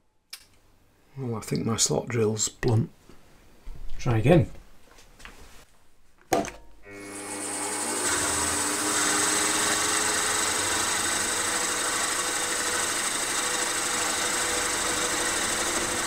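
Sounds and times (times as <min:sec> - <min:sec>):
milling machine whirring: 0:06.9 - 0:16.0.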